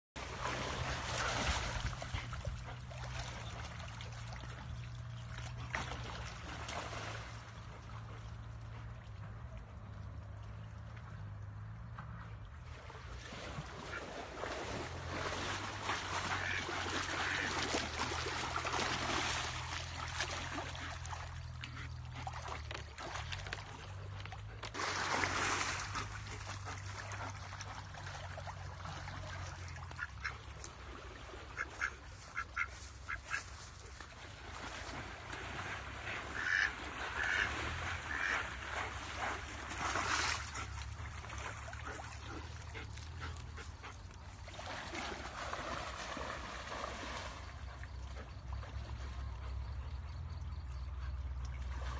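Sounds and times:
water rushing in a stream: 0.2s - 51.9s
duck quacking: 16.3s - 17.6s, 31.6s - 33.5s, 36.3s - 37.5s, 38.1s - 38.5s.

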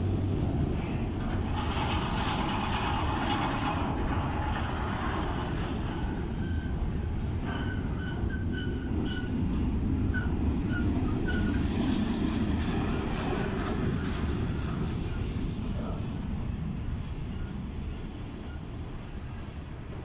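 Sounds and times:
freight train wheels rumbling: 0.0s - 20.0s
high wheel squeals: 5.2s - 9.5s, 10.1s - 11.7s, 13.6s - 19.6s.

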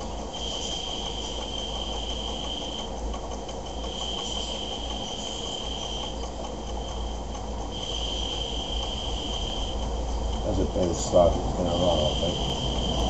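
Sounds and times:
steam boiler hissing: 0.0s - 13.0s
high whistle-like tone: 0.4s - 2.9s, 7.7s - 10.6s.

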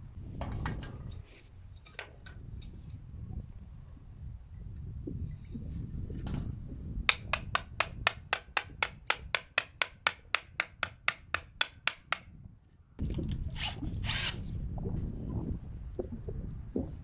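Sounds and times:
hammer driving a nail into wood: 7.1s - 12.3s.

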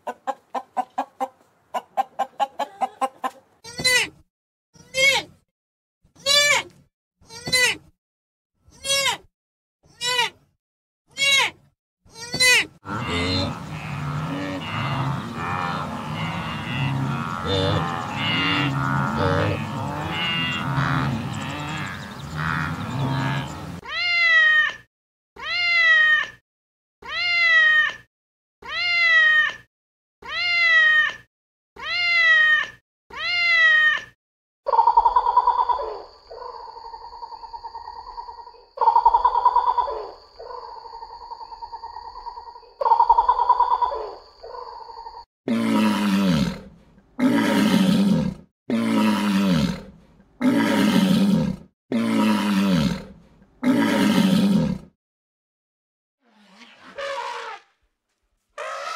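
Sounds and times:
long animal calls: 12.8s - 23.8s, 58.6s - 58.9s
rough low animal calls: 12.8s - 23.8s, 58.6s - 58.9s
cat meowing: 27.0s - 28.0s, 28.6s - 29.6s, 30.2s - 31.2s, 31.8s - 34.1s.

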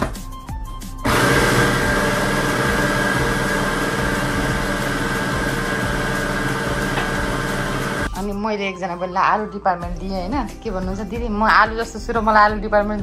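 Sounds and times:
blender motor running: 1.1s - 8.1s.

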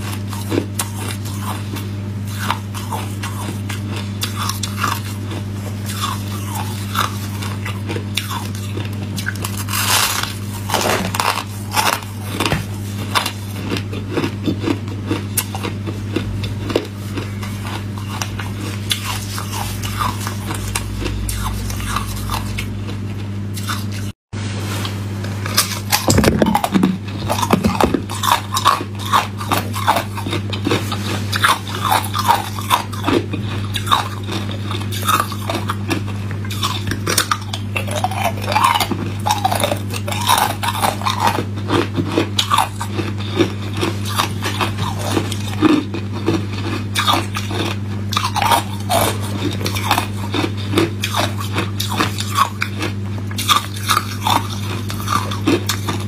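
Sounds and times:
steady low hum: 0.0s - 56.0s
ice cubes crunched between teeth: 5.9s - 16.9s.

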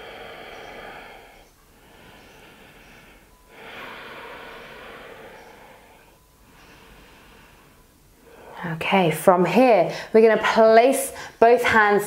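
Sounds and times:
person breathing through the nose: 0.0s - 8.6s.

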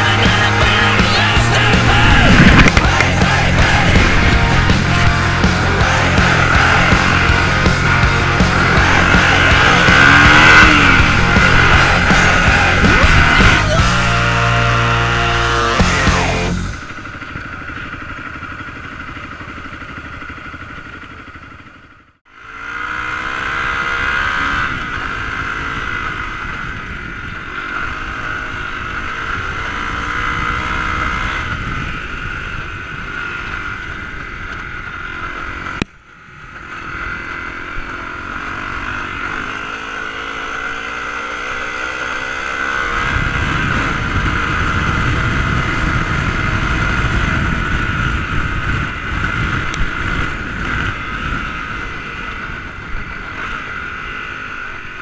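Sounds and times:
low rumble: 0.0s - 20.7s
dirt bike engine revving: 0.0s - 55.0s.

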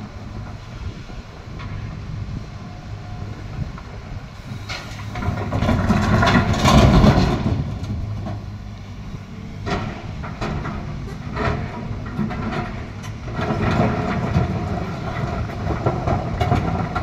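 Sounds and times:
excavator diesel engine running: 0.0s - 17.0s
stones crashing into truck bed: 5.2s - 8.0s.

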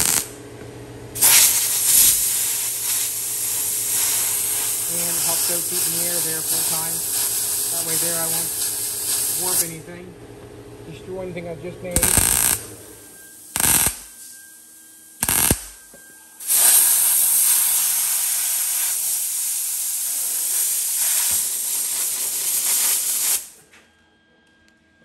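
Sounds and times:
welding tacks crackling: 0.0s - 0.3s, 1.2s - 9.7s, 12.0s - 12.7s, 13.6s - 14.1s, 15.2s - 15.8s, 16.4s - 23.5s
air blowgun hissing: 1.2s - 9.8s, 12.0s - 12.6s, 13.6s - 14.1s, 15.2s - 15.8s, 16.4s - 23.6s.

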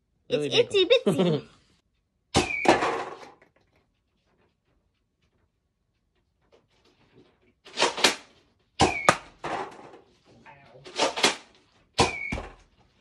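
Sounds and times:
toy blaster shot with whistle: 2.3s - 3.1s, 8.8s - 9.4s, 12.0s - 12.6s.

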